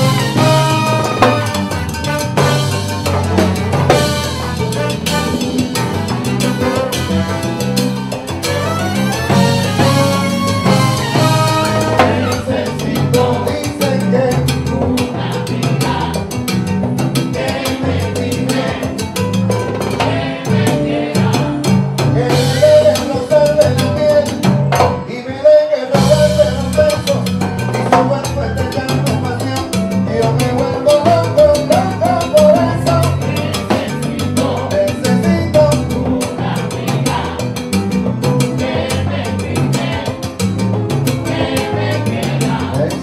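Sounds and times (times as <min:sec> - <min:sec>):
lead and backing vocals: 0:00.0 - 0:02.2, 0:08.6 - 0:27.3, 0:27.9 - 0:43.0
live salsa band playing: 0:00.0 - 0:43.0.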